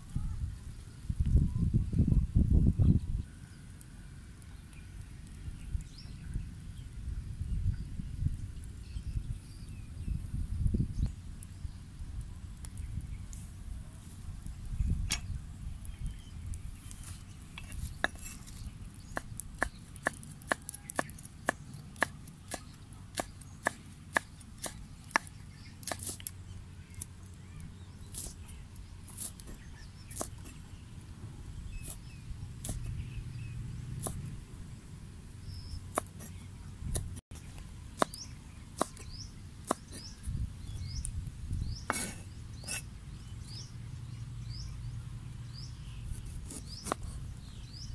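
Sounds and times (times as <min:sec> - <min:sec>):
cleaver chopping on wooden board: 0:23.2 - 0:26.2.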